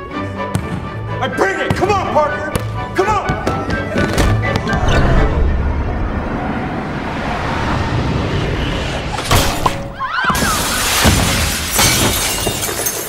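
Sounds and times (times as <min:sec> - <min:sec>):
film music: 0:00.0 - 0:10.2
glass shattering: 0:10.4 - 0:13.0.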